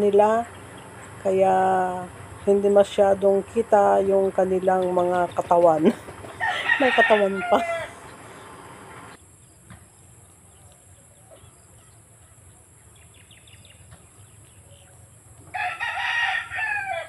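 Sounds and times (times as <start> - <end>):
rooster crowing: 6.4 - 8.0, 15.5 - 17.0.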